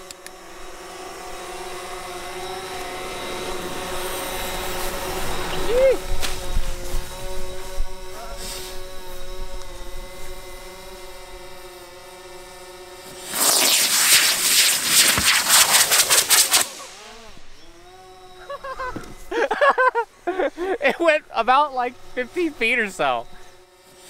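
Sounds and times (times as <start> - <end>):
firework rocket rushing hiss: 1.4 - 9.2, 13.0 - 19.5, 22.0 - 24.0.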